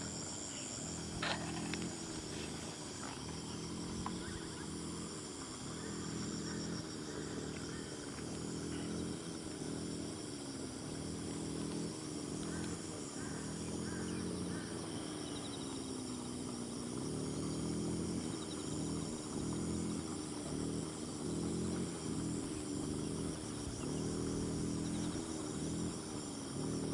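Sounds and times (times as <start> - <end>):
low droning hum: 0.0 - 15.6
insects trilling: 0.0 - 26.9.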